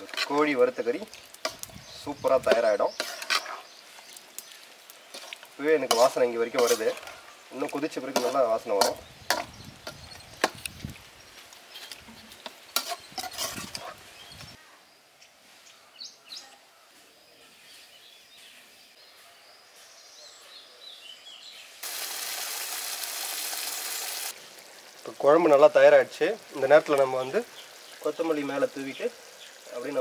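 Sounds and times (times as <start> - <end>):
metal spatula scraping metal pot: 0.0 - 1.7, 2.5 - 3.8, 5.1 - 7.3, 8.1 - 10.6, 12.8 - 14.0
curry simmering with sizzling hiss: 0.0 - 20.4, 21.2 - 30.0.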